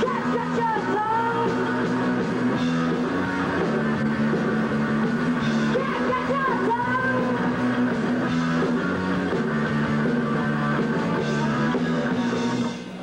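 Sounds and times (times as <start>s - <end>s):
punk rock band playing loudly: 0.0s - 13.0s
electric guitar bending notes: 1.2s - 12.9s.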